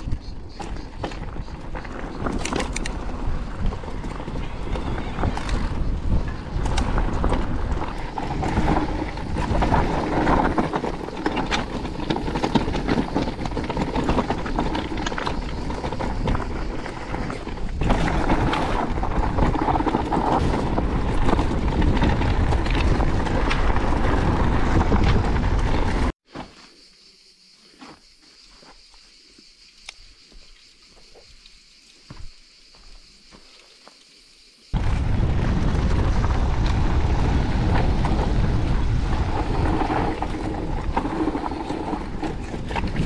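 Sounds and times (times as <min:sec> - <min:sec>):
bike rattling and clicking: 0:00.0 - 0:26.1, 0:34.8 - 0:43.0
wind noise on microphone: 0:00.0 - 0:26.2, 0:34.7 - 0:43.0
tyres on loose ground: 0:00.0 - 0:26.9, 0:27.5 - 0:43.0.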